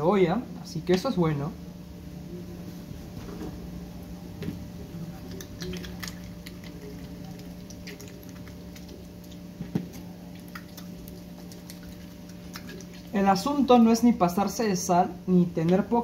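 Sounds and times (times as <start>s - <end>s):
onions crackling in oil: 5.3s - 13.2s.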